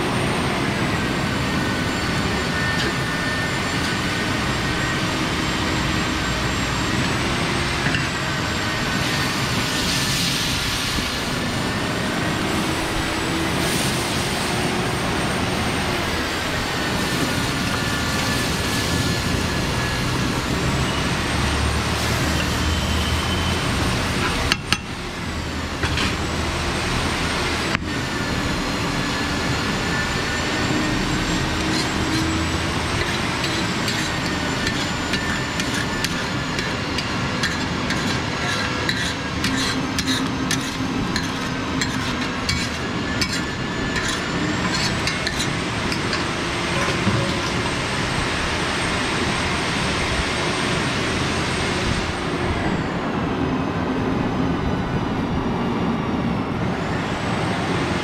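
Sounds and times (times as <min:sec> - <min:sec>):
egg cooking on griddle: 0:31.5 - 0:46.5
spatula scraping and tapping iron: 0:31.6 - 0:32.4, 0:33.0 - 0:47.6.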